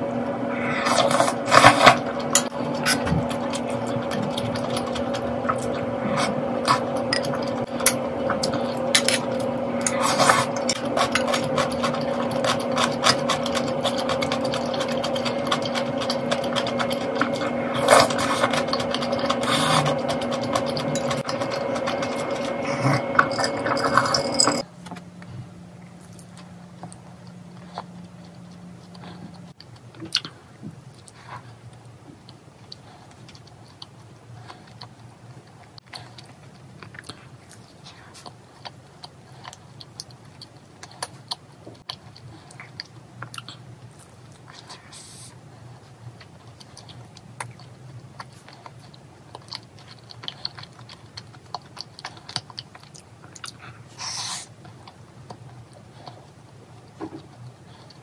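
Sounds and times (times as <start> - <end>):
mechanical hum: 0.0 - 58.0
eating noises: 0.2 - 24.7, 25.9 - 58.0
utensils clinking on ceramic bowls: 6.6 - 24.6
mouth sounds eating cookie: 26.0 - 58.0.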